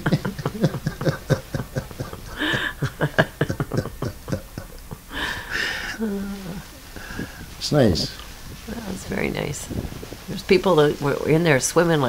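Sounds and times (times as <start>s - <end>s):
people laughing: 0.0s - 7.2s.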